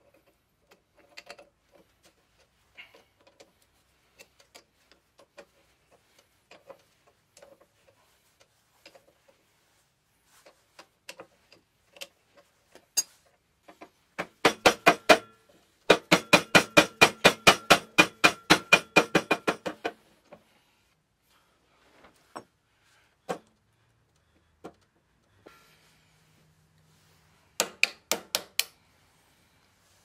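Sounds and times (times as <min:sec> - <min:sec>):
light clicks of handled parts: 0:00.0 - 0:09.4, 0:10.4 - 0:13.9.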